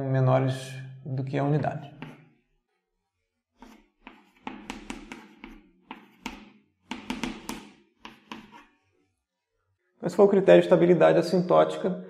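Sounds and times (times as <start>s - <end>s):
chalk tapping and scraping on chalkboard: 1.8s - 9.1s.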